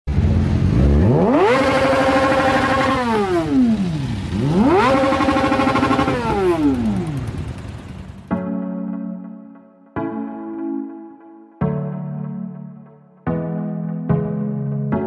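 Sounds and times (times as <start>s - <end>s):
engine idling and revving: 0.1s - 8.3s.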